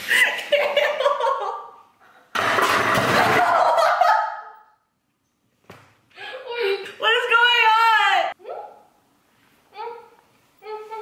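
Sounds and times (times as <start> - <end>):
young women laughing: 0.0 - 1.8, 3.2 - 4.6.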